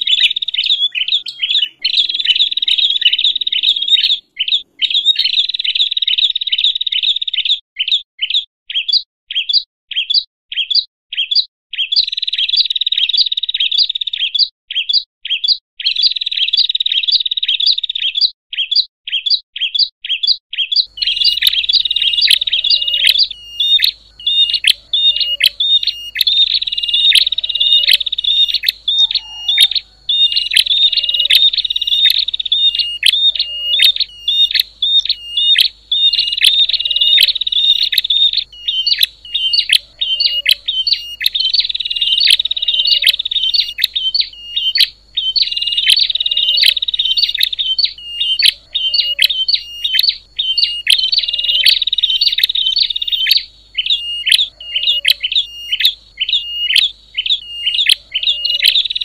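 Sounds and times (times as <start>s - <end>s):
small birds chirping: 0.0s - 59.0s
high ticks: 20.8s - 48.6s, 49.2s - 53.4s, 57.8s - 59.0s.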